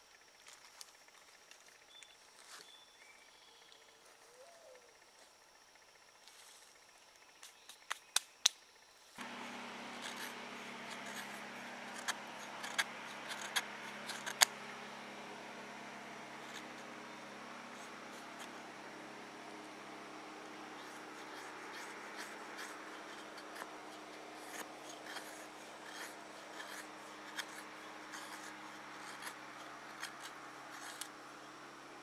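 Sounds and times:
steady faint hiss: 0.0s - 32.0s
knife scraping wood: 9.2s - 31.7s.

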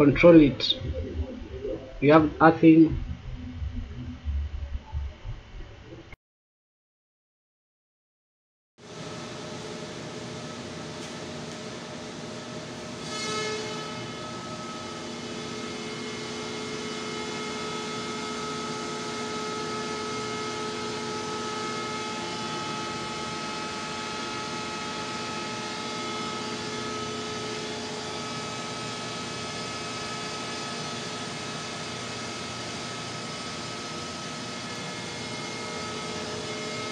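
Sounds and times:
electrical equipment hum: 0.0s - 6.2s
steady whining tones: 0.0s - 6.2s.

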